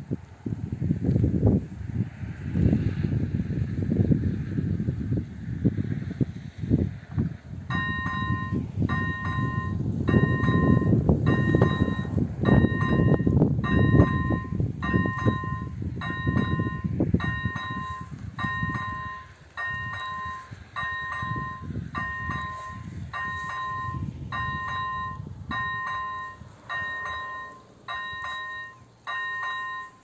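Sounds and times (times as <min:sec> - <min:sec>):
wind rumbling on microphone: 0:00.0 - 0:30.0
level crossing warning bell: 0:07.7 - 0:30.0.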